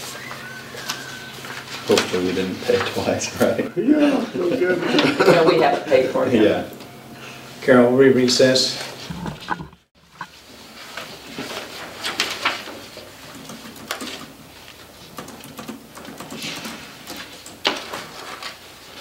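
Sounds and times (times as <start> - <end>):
paper rustling: 0.0 - 3.3, 10.4 - 15.1, 16.4 - 19.0.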